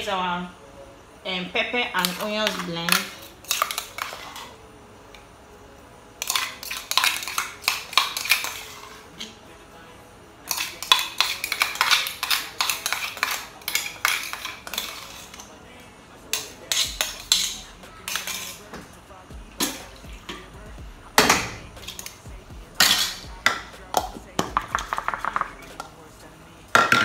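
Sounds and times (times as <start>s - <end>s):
metal spoon clinking on bowl: 10.5s - 15.5s.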